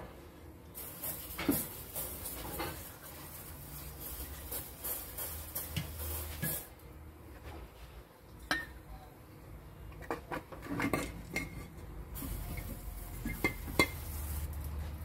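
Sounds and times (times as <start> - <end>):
aerosol can spraying: 0.8 - 6.7, 12.2 - 14.6.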